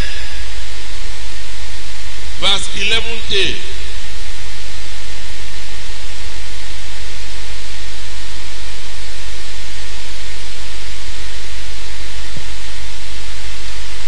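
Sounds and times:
loud steady hiss: 0:00.0 - 0:04.6
low electrical hum: 0:00.0 - 0:14.0.

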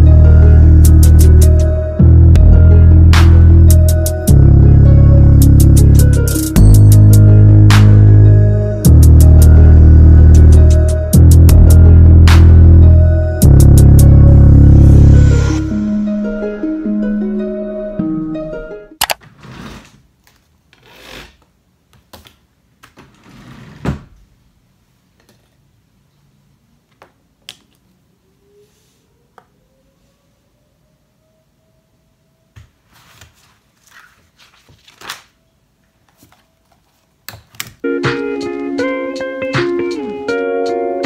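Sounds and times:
sliding and rustling: 0:32.7 - 0:35.4.

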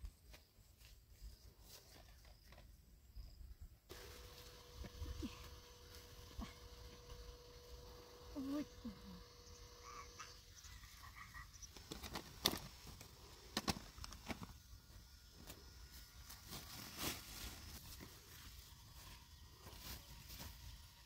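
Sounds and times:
cloth and plastic rustling: 0:16.2 - 0:18.4.

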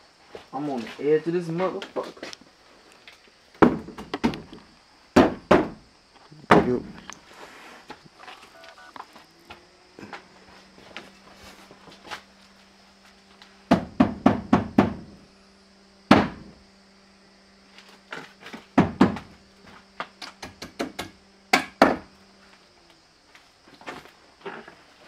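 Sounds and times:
faint steady hum: 0:00.0 - 0:25.0
footsteps and thuds: 0:03.6 - 0:04.6, 0:18.1 - 0:21.0.

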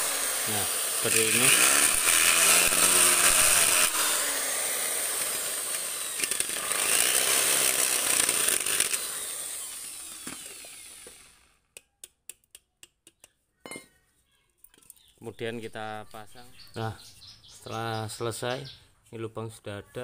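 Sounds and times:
electric drill boring through steel: 0:00.0 - 0:11.6.

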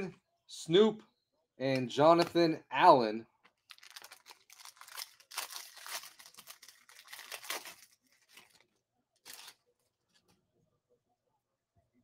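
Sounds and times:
foil wrapper tearing and crinkling: 0:03.6 - 0:08.6, 0:09.2 - 0:09.6.

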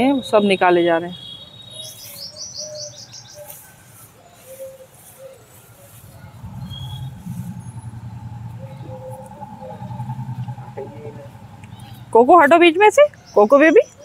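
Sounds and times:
bird chirping: 0:00.0 - 0:14.0
low fast-pulsing hum: 0:06.0 - 0:12.2.

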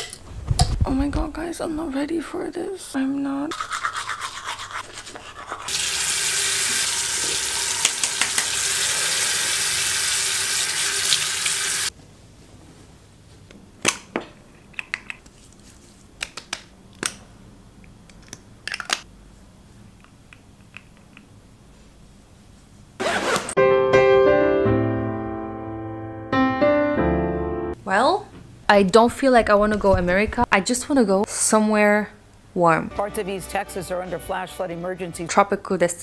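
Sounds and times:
toothbrush scrubbing teeth: 0:03.5 - 0:06.1
tap running into sink: 0:06.6 - 0:08.8.

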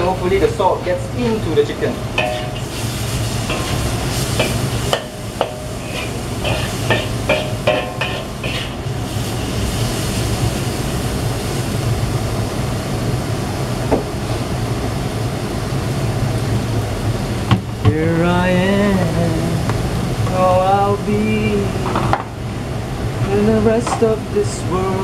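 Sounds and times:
food sizzling: 0:00.0 - 0:13.2
low constant hum: 0:00.0 - 0:25.0
metal spatula scraping a wok: 0:01.7 - 0:08.8.

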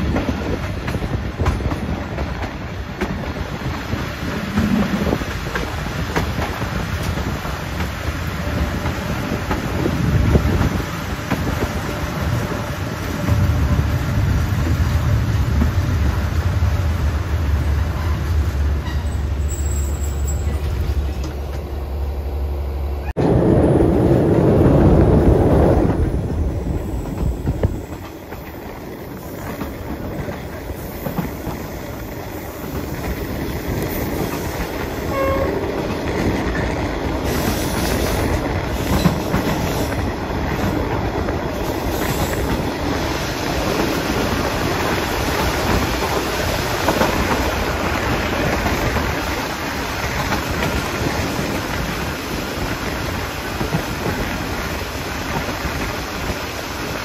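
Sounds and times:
train rumbling on track: 0:00.0 - 0:57.0.

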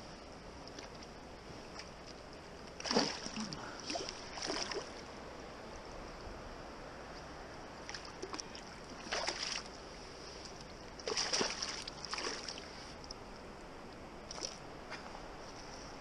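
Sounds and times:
splashes in shallow water: 0:02.8 - 0:05.0, 0:07.8 - 0:09.8, 0:11.0 - 0:12.8.

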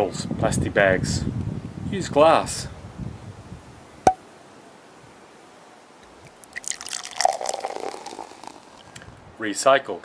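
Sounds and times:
man gulping from a bottle: 0:06.3 - 0:09.1.

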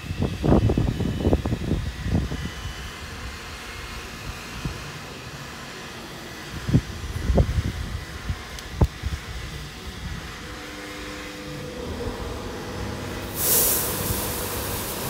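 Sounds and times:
car wash motor whine: 0:00.0 - 0:15.0
water spray rushing: 0:13.1 - 0:15.0.

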